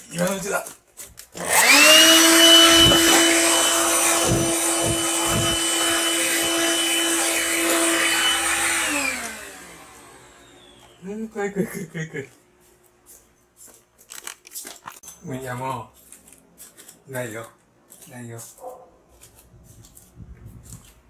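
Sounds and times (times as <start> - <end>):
vacuum cleaner motor whine: 1.4 - 11.1
dull thumps: 2.4 - 6.6.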